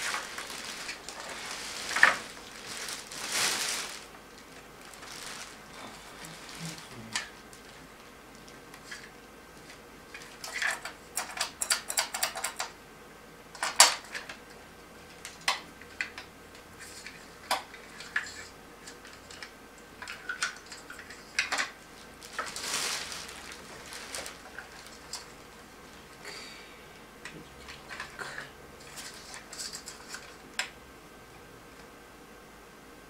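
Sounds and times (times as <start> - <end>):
plastic wrap rustling: 0.0 - 10.7, 20.0 - 26.2, 28.8 - 30.4.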